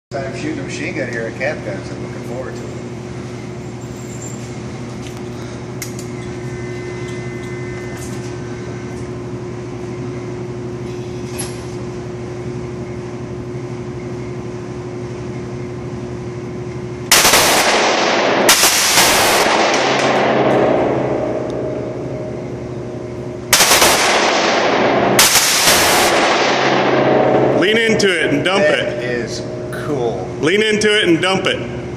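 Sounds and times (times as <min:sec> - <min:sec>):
background hum: 0:00.1 - 0:31.9
gun firing on full auto: 0:17.1 - 0:21.0, 0:23.5 - 0:27.4.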